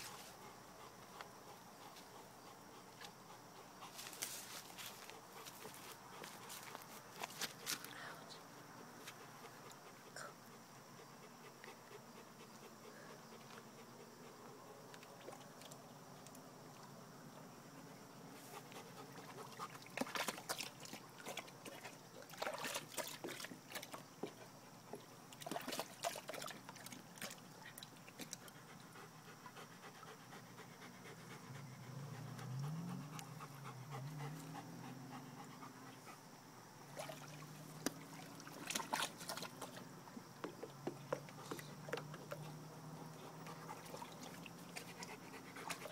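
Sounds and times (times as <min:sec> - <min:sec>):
dog panting: 0:00.0 - 0:07.3, 0:09.0 - 0:14.8, 0:17.8 - 0:19.8, 0:28.3 - 0:36.4, 0:42.4 - 0:44.1, 0:44.7 - 0:45.9
splashing in shallow water: 0:19.1 - 0:24.0, 0:25.3 - 0:28.3, 0:36.9 - 0:39.9, 0:43.4 - 0:45.0.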